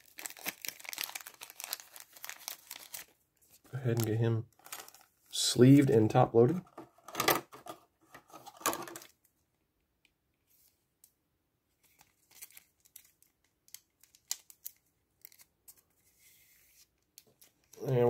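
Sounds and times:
plastic scraping and rustling: 0.9s - 5.1s, 6.6s - 9.2s.

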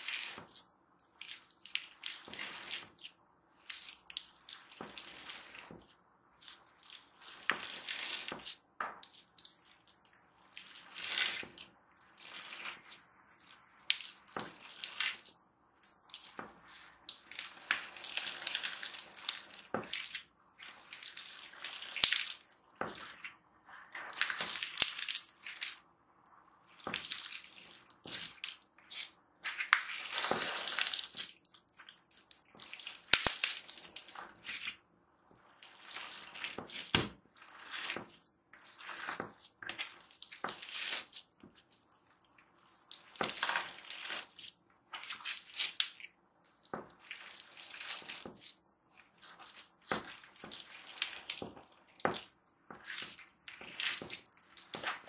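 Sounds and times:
slime crunching and squelching: 0.0s - 55.0s.

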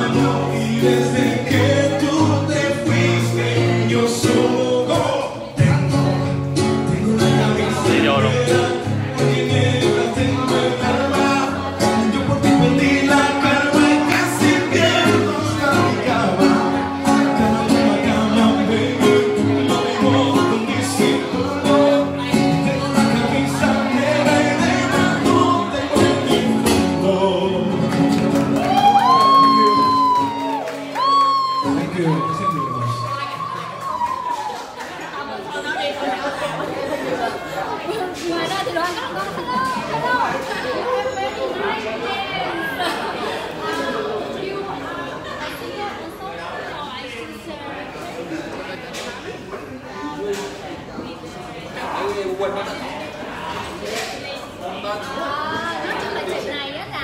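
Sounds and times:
man singing into microphone: 0.0s - 30.6s
acoustic guitar: 0.0s - 45.8s.

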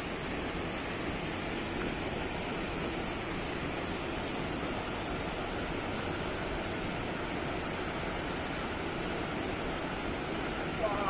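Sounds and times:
waterfall rushing: 0.0s - 11.0s.

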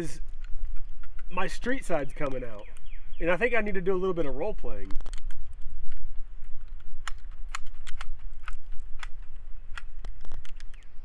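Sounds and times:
cartridges clicking into magazine: 6.7s - 10.9s.

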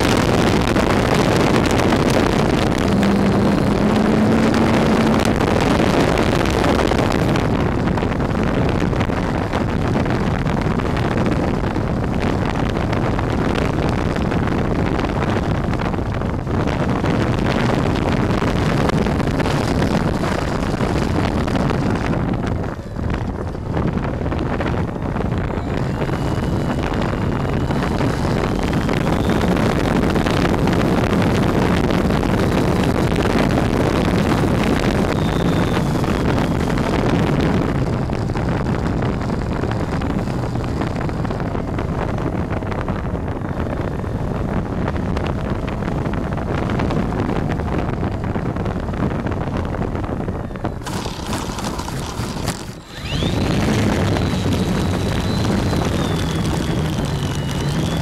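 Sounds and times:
faint rising whine: 0.0s - 8.0s, 23.8s - 37.9s, 50.5s - 58.0s
model airplane motor and propeller: 0.0s - 58.0s
wind rushing over microphone: 0.0s - 58.0s.

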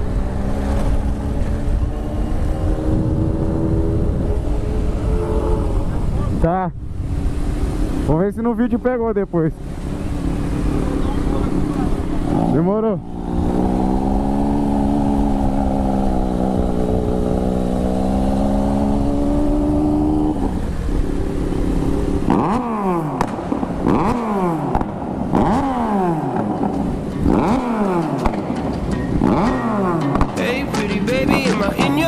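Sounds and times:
motorcycle throttle blips: 9.6s - 32.0s
motorcycle engine running: 9.8s - 32.0s.

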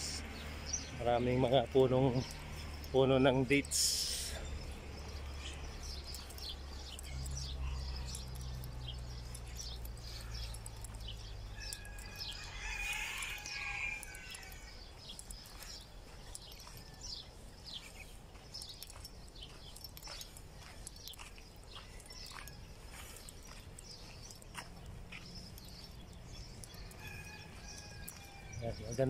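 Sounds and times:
small birds chirping: 0.0s - 29.0s
rooster crowing: 11.6s - 14.8s, 26.7s - 28.6s.

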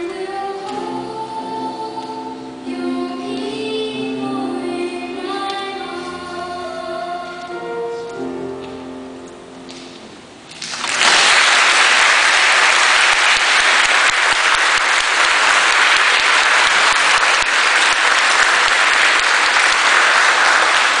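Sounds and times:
congregation applauding: 10.5s - 21.0s.

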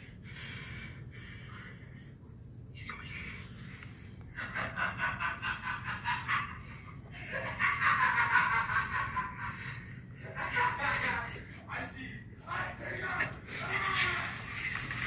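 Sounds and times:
person gasping and squealing: 13.5s - 15.0s.

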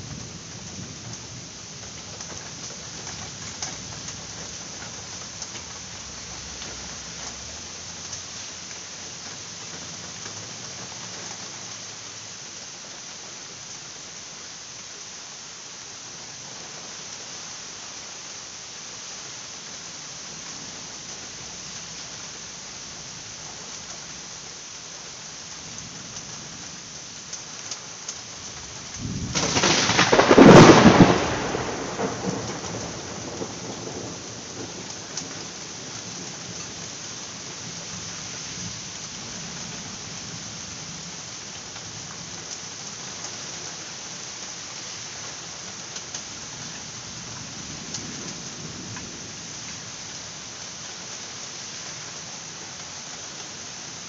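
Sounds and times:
steady rain: 0.0s - 54.0s
thunder rumbling: 28.5s - 36.9s.

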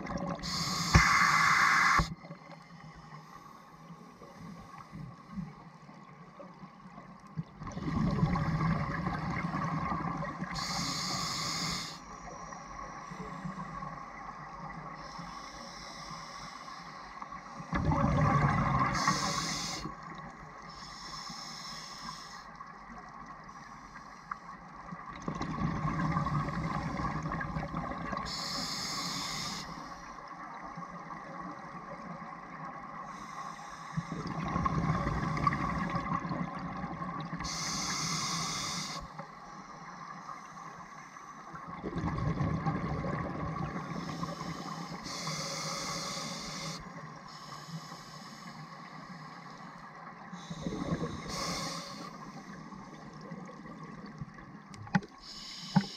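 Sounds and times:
regulator hiss on inhale: 0.4s - 5.4s, 10.5s - 13.7s, 14.9s - 17.7s, 18.8s - 22.7s, 23.4s - 24.6s, 28.2s - 30.2s, 33.0s - 34.5s, 37.4s - 41.6s, 43.6s - 53.4s, 55.2s - 55.9s
bubbling exhale underwater: 17.7s - 19.1s, 41.8s - 43.8s.

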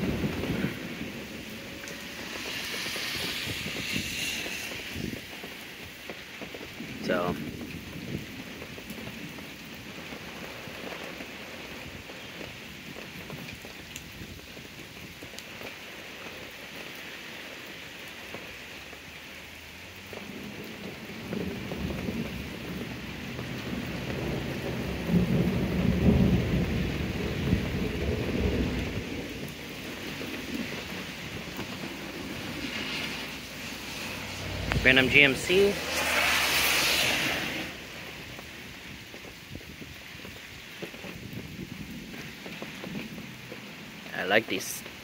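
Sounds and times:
thunder rolling: 0.0s - 11.4s, 20.0s - 44.1s
rain on wet pavement: 0.0s - 45.0s.

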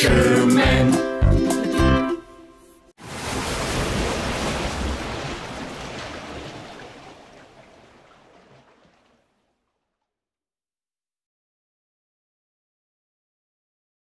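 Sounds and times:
water splashing: 3.0s - 10.0s.

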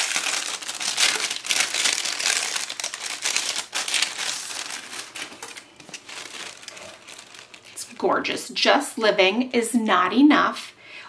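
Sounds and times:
plastic packaging crinkling: 0.0s - 8.5s.

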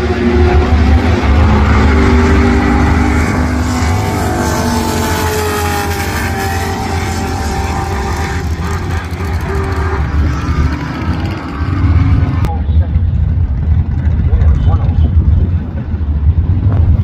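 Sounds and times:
car engines at full throttle: 0.0s - 17.0s.

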